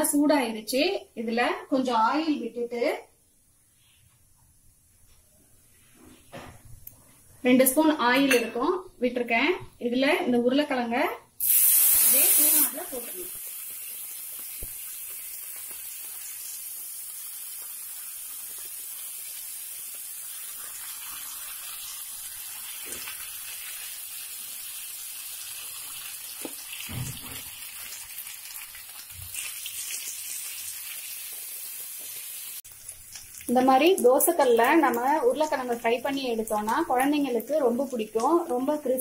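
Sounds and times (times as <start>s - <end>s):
oil sizzling under frying potatoes: 11.4s - 39.0s.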